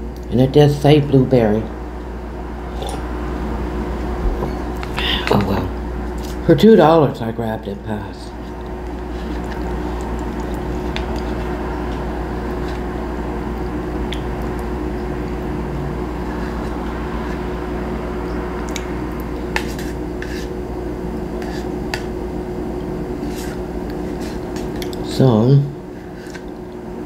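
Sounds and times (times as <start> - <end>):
steady hum: 0.0 - 27.0
spoon scraping plastic cup: 19.6 - 20.5, 21.4 - 22.1.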